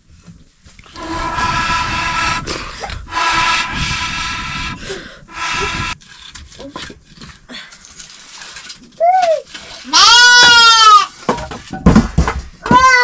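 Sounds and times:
steam hissing: 1.0s - 6.0s
pressure cooker whistle: 3.1s - 4.5s, 5.3s - 6.0s.

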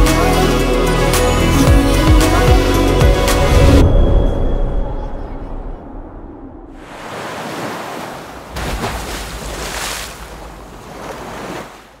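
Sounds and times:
ocean waves on beach: 6.8s - 12.0s.

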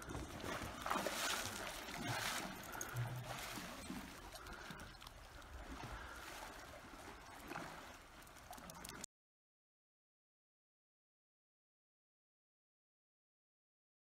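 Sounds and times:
pool water lapping and trickling: 0.0s - 9.1s.

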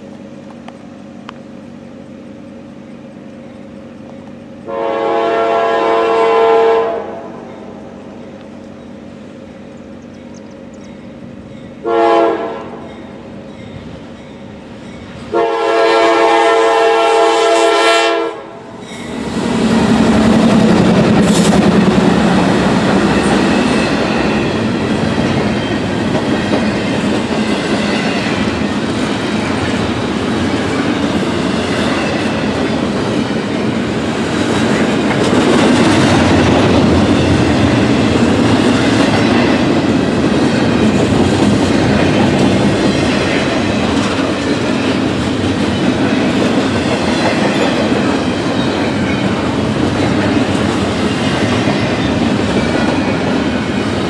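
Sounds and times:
train wheels rumbling on rails: 0.0s - 54.0s
train horn blasts: 4.6s - 7.5s, 11.8s - 13.0s, 15.2s - 18.8s
locomotives passing: 18.4s - 54.0s.

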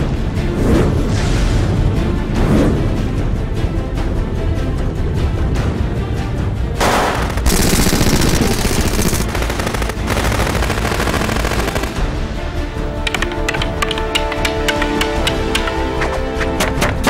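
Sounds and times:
rapid gunfire: 6.8s - 12.2s
music track: 7.2s - 17.0s.

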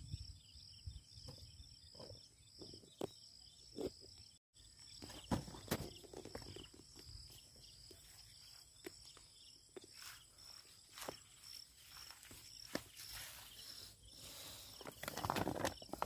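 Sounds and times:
high insect chirping: 0.0s - 16.0s
knocks and rustles in grass: 7.9s - 16.0s.

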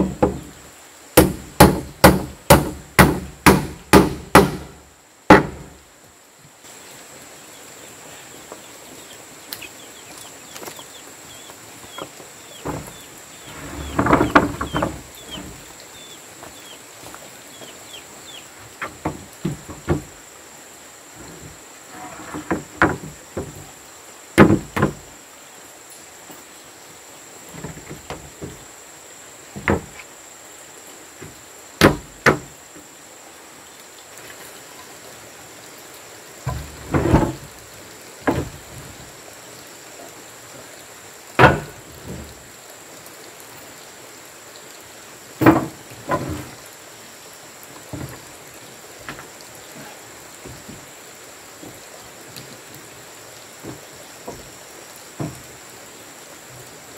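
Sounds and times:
wooden boards knocking: 0.0s - 0.5s, 1.2s - 5.7s, 12.0s - 15.6s, 18.8s - 20.2s, 22.1s - 23.7s, 24.4s - 25.0s, 29.6s - 30.0s, 31.2s - 32.5s, 36.5s - 37.5s, 38.2s - 38.6s, 41.4s - 42.3s, 45.4s - 46.5s, 47.9s - 48.3s, 55.2s - 55.4s.

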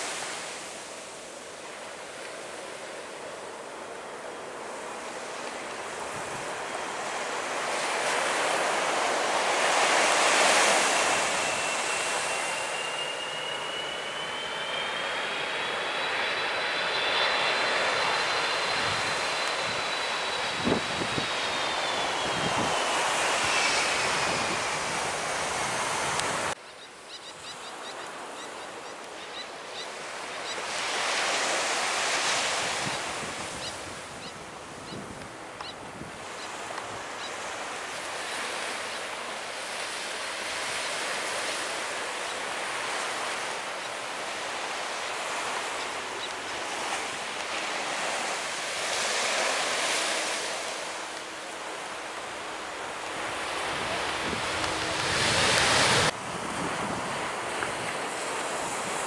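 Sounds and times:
surf washing onto beach: 0.0s - 3.2s, 4.4s - 13.7s, 30.0s - 59.0s
jet engines whining: 1.0s - 26.6s, 27.7s - 59.0s
wind on microphone: 17.1s - 26.6s, 30.7s - 37.1s, 52.5s - 59.0s.

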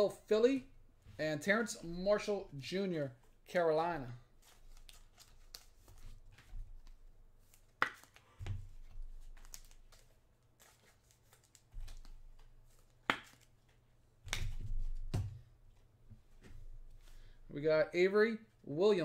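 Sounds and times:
cards clicking and rustling: 4.4s - 15.0s.

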